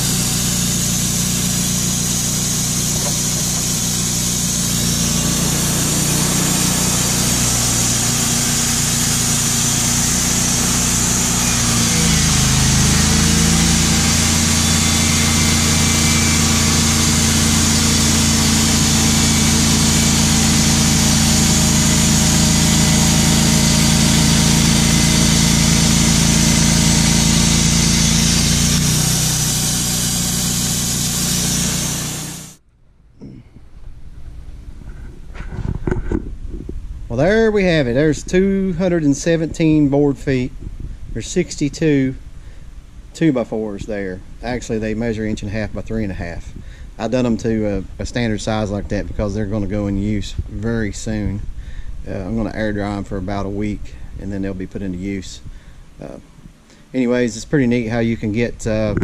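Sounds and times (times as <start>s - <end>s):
band sawmill running: 0.0s - 32.6s.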